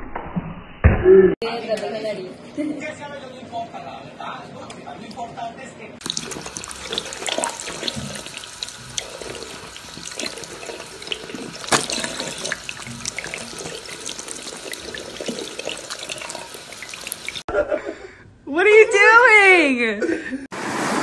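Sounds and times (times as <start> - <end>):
cat drinking from water stream: 6.0 - 17.5
water stream splashing into basin: 6.0 - 17.5.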